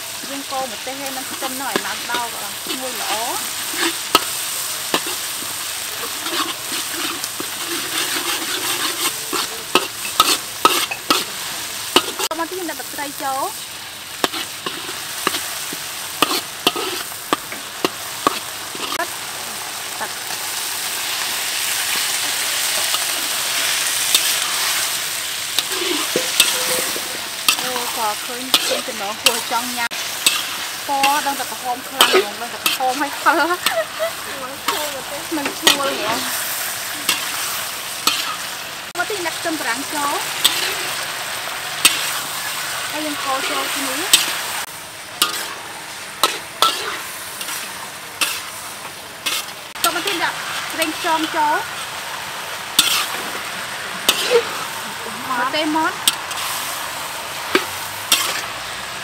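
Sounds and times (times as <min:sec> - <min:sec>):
mushrooms sizzling in oil: 0:00.0 - 0:59.0
metal spatula scraping wok: 0:00.1 - 0:19.2, 0:19.8 - 0:58.8.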